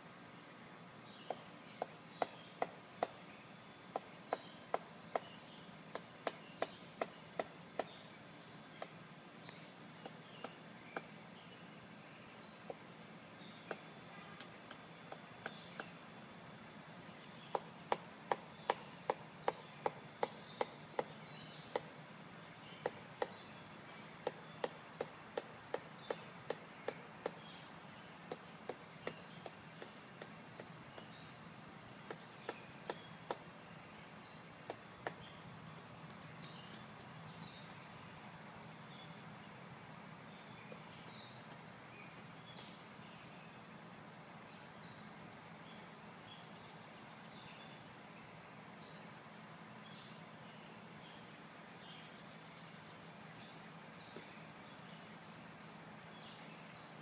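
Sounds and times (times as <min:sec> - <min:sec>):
woodpecker pecking on tree trunk: 0:01.2 - 0:03.2, 0:03.9 - 0:05.3, 0:05.9 - 0:08.0, 0:10.0 - 0:11.1, 0:13.6 - 0:15.9, 0:17.5 - 0:21.9, 0:22.8 - 0:23.4, 0:24.2 - 0:27.4, 0:28.3 - 0:31.2, 0:32.0 - 0:33.5, 0:34.7 - 0:35.3.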